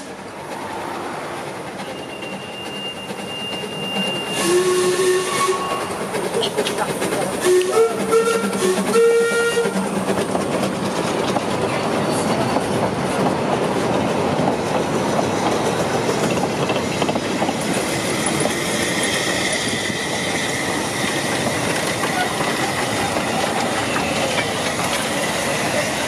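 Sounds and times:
train wheels clattering over rails: 0:00.0 - 0:26.0
steam whistle blasts: 0:01.9 - 0:06.0, 0:07.4 - 0:09.9.

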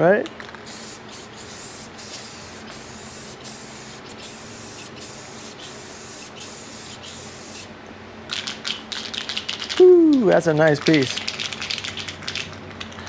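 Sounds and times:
spray gun hissing: 0:00.7 - 0:07.7.

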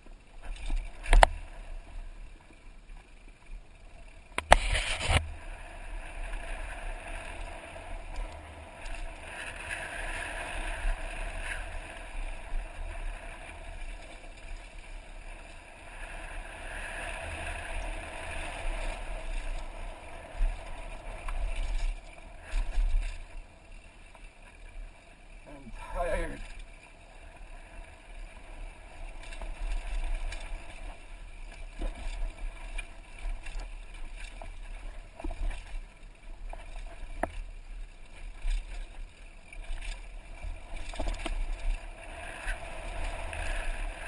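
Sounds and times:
bike tyres rolling over gravel: 0:00.0 - 0:44.0
wind noise on microphone: 0:04.4 - 0:13.7.

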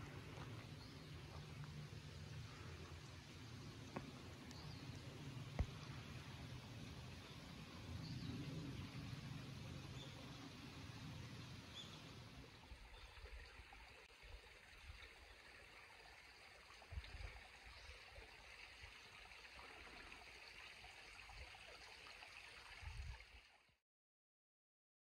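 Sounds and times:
stream rushing: 0:00.0 - 0:12.8.

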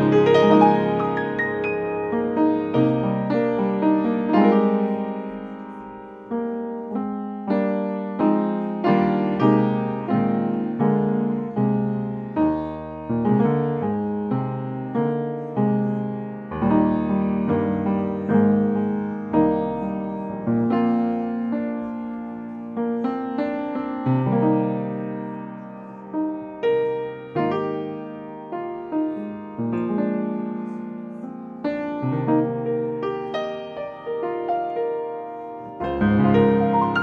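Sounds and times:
slow solo piano: 0:00.0 - 0:37.0.

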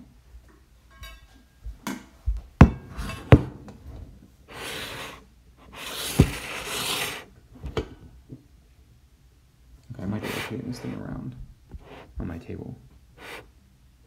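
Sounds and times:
popcorn maker scraping on table: 0:04.6 - 0:07.3
thump: 0:06.2 - 0:06.5.

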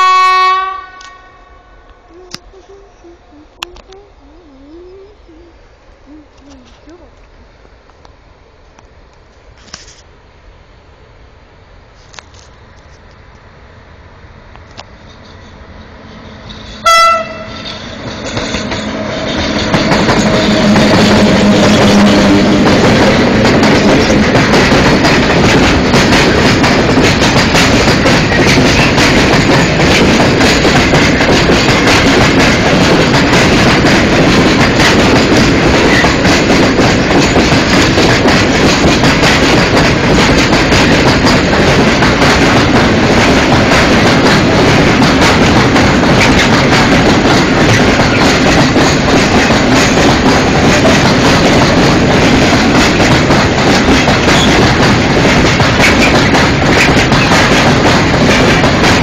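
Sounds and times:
locomotive horn blast: 0:00.0 - 0:02.0, 0:16.6 - 0:18.0
train wheels rumbling on rails: 0:11.8 - 0:59.0.

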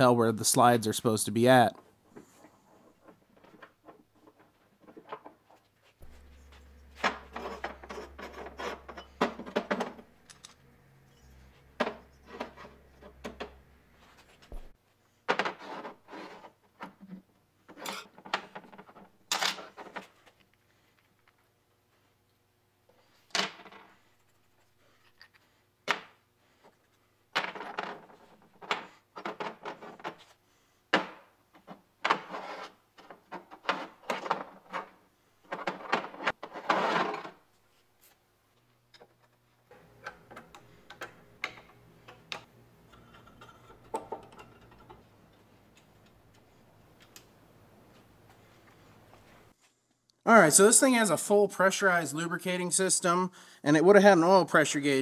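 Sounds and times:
faint steady hum: 0:06.0 - 0:15.2.

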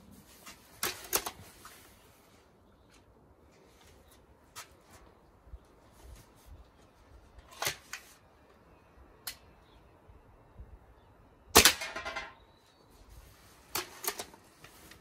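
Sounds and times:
air rifle shot: 0:11.5 - 0:12.2.

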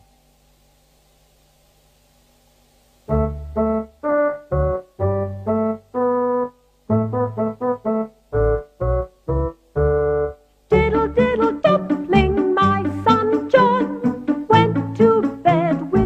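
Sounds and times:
electronic keyboard tune: 0:03.1 - 0:16.0.

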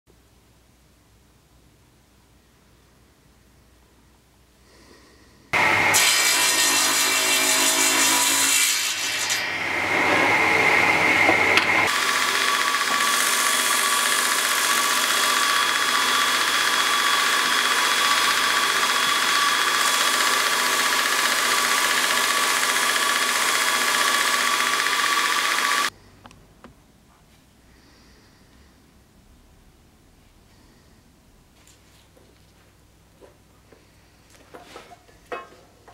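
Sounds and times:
belt grinder sanding wood: 0:05.8 - 0:25.9.

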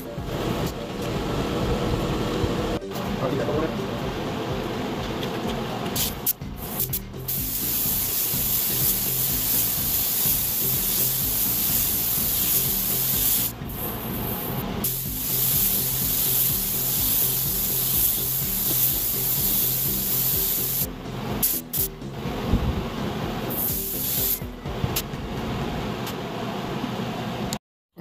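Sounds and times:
paint spray gun hissing: 0:06.0 - 0:21.9, 0:23.5 - 0:24.5.

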